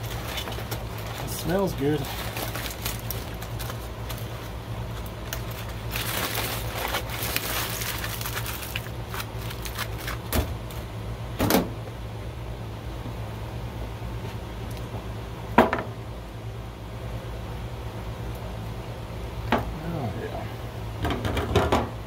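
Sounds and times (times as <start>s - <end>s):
aluminium foil crinkling: 0.0s - 10.9s
steady low hum: 0.0s - 22.0s.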